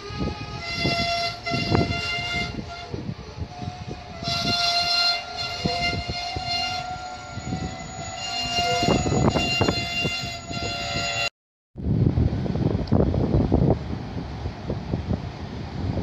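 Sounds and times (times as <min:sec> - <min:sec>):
high-pitched wheel squeal: 0:00.2 - 0:11.3.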